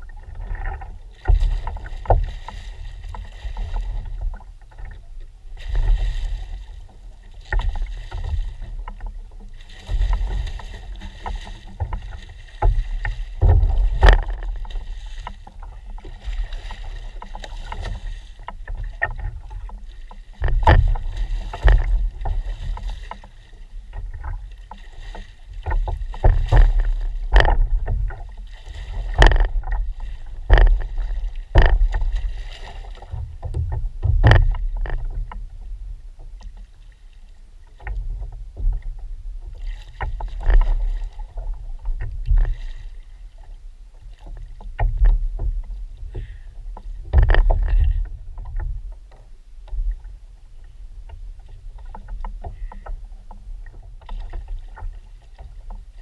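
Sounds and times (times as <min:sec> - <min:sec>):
low rumble: 0:00.0 - 0:19.7, 0:25.8 - 0:36.6
water slapping against hull: 0:00.0 - 0:56.0
sharp knocks: 0:33.4 - 0:35.0.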